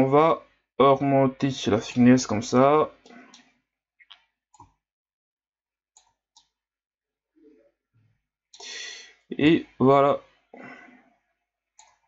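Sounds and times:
computer mouse clicks: 0:03.0 - 0:04.8, 0:06.0 - 0:06.6, 0:11.8 - 0:12.0.

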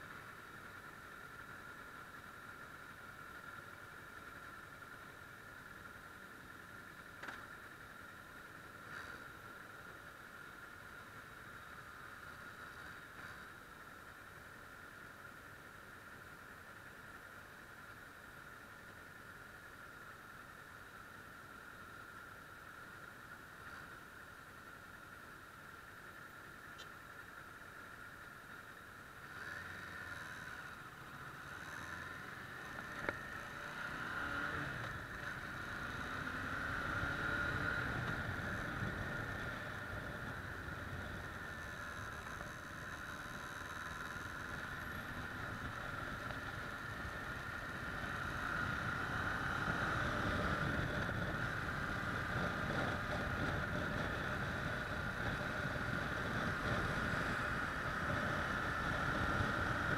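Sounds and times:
wind and road noise: 0:00.0 - 0:59.9
motorcycle engine accelerating: 0:29.2 - 0:59.9.

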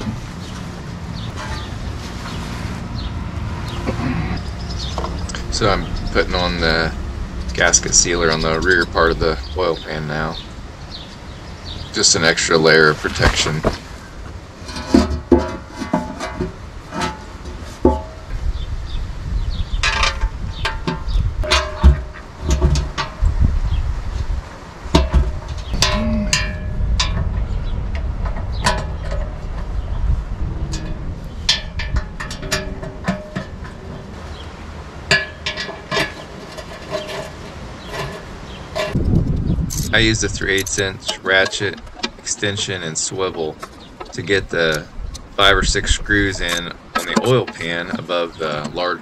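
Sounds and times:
low steady rumble: 0:00.0 - 0:48.9
metal tools clinking on metal: 0:19.8 - 0:23.2, 0:35.1 - 0:39.0, 0:39.7 - 0:49.0.

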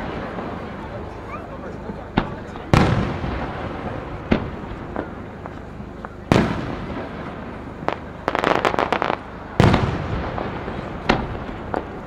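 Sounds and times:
loud firework boom: 0:02.2 - 0:05.2, 0:06.3 - 0:07.6, 0:08.3 - 0:12.0
firework shells bursting: 0:07.9 - 0:12.0.

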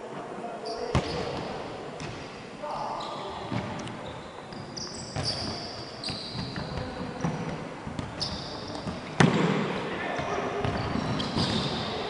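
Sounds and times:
sneakers squeaking on gym floor: 0:00.6 - 0:02.2, 0:02.8 - 0:12.0.

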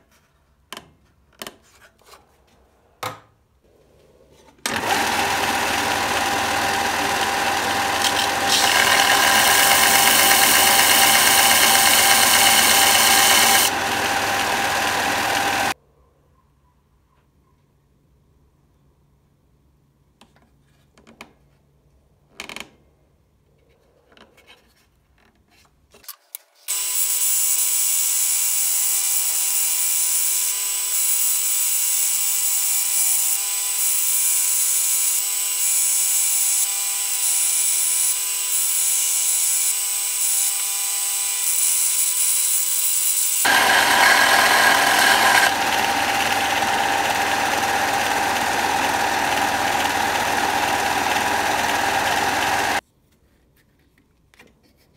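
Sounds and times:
belt sander grinding metal: 0:04.7 - 0:15.8, 0:41.4 - 0:52.8.

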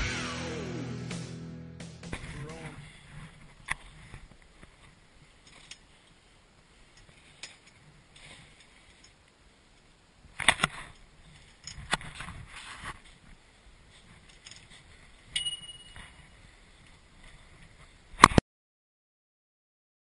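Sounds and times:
swing chains creaking and clinking: 0:05.4 - 0:05.9, 0:14.1 - 0:16.3
metallic clanks: 0:14.3 - 0:16.2.

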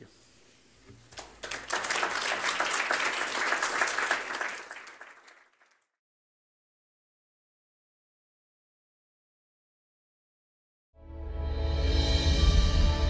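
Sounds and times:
audience applauding: 0:01.1 - 0:05.9.

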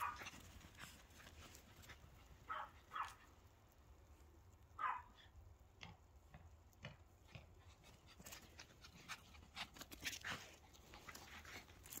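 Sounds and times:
small dog panting: 0:07.3 - 0:12.0.

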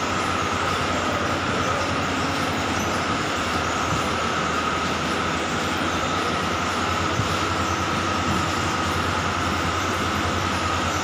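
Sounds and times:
machine running with high whine: 0:00.0 - 0:11.0.

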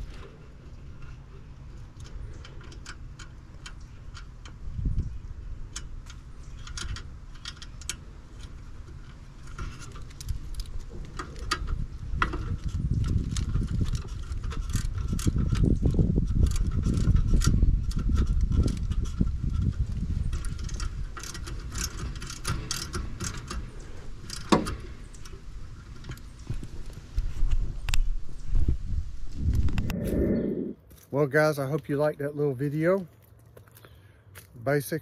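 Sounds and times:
small metallic clicks and rattles: 0:00.0 - 0:28.1
low uneven rumble: 0:22.4 - 0:31.2.

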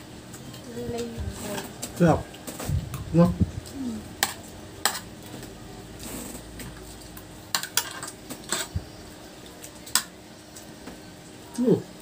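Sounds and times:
cutlery clinking on metal trays: 0:07.5 - 0:08.7.

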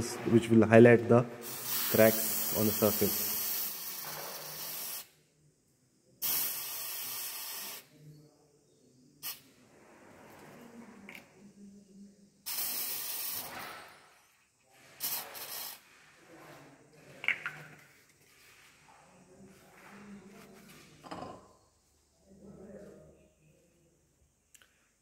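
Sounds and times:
aerosol can spraying: 0:01.4 - 0:05.2, 0:06.2 - 0:07.9, 0:12.4 - 0:13.8, 0:15.0 - 0:15.9.

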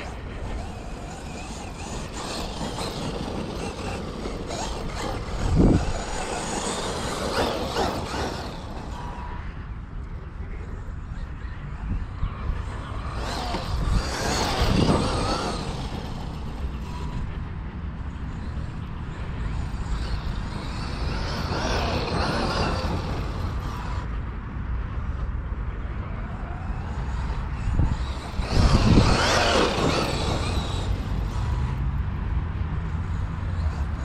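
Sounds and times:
wind rumbling on microphone: 0:00.0 - 0:34.0.

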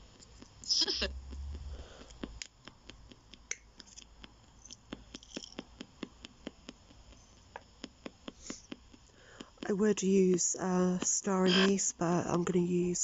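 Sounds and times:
radio hiss: 0:00.6 - 0:02.3, 0:05.0 - 0:13.0.

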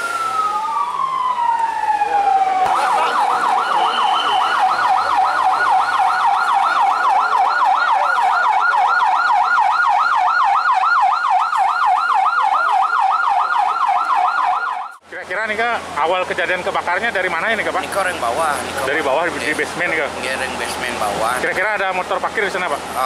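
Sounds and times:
fire engine siren yelp: 0:00.0 - 0:15.0.

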